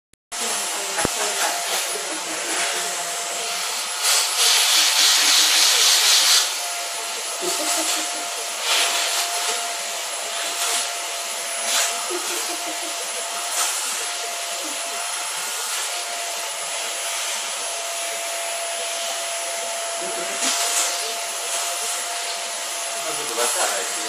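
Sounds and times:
vacuum cleaner motor whine: 0:00.4 - 0:24.0
vacuum suction hiss: 0:00.4 - 0:24.0.

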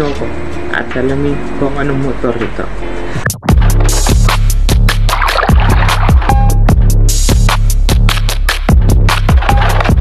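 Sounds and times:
music with heavy bass and beat: 0:03.2 - 0:10.0.

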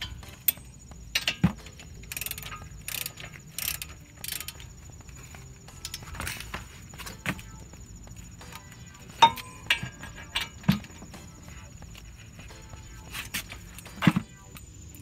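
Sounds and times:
metal tool clicks and knocks: 0:00.0 - 0:04.7
sharp metallic clink: 0:09.2 - 0:10.8.

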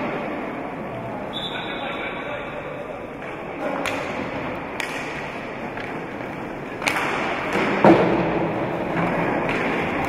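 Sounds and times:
sports hall noise: 0:00.0 - 0:10.0
hockey sticks and ball clacking: 0:02.9 - 0:10.0.

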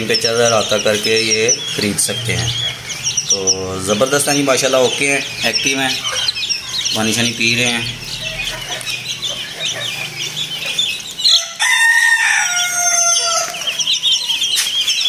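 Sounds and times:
chicks peeping: 0:00.0 - 0:15.0
rooster crowing: 0:08.2 - 0:14.5.

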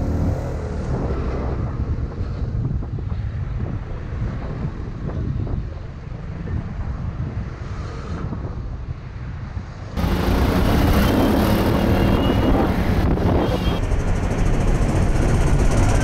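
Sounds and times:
wind rushing over microphone: 0:00.0 - 0:16.0
motorcycle engine: 0:10.0 - 0:16.0.

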